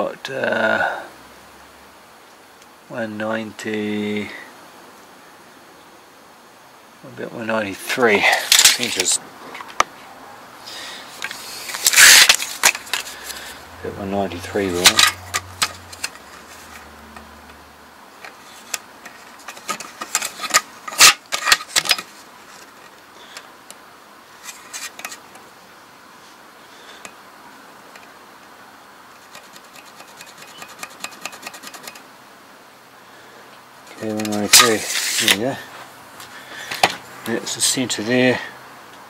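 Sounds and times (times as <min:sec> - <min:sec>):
tape measure clicks and rubs: 0:11.2 - 0:13.4, 0:19.4 - 0:22.0, 0:29.2 - 0:32.0, 0:34.0 - 0:35.4.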